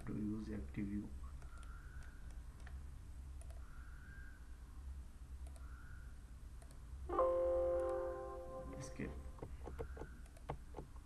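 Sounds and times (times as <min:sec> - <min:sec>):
low steady hum: 0:00.0 - 0:11.0
computer mouse clicks: 0:01.3 - 0:02.8, 0:03.4 - 0:03.7, 0:05.4 - 0:06.0, 0:06.6 - 0:06.8, 0:09.4 - 0:11.0.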